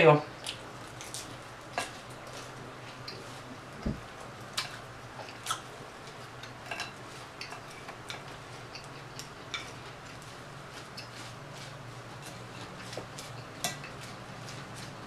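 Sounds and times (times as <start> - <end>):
dull thump: 3.8 - 4.0.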